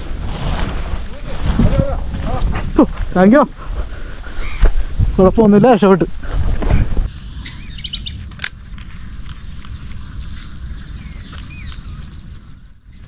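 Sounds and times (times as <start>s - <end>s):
wind rumble on microphone: 0.0s - 13.0s
short bird chirps: 7.2s - 8.2s.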